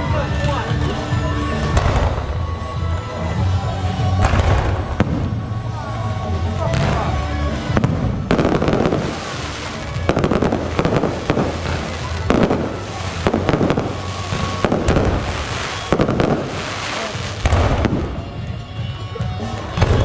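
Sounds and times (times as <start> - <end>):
fireworks bangs: 1.6 - 2.6, 4.1 - 5.7, 6.6 - 18.8, 19.7 - 20.0.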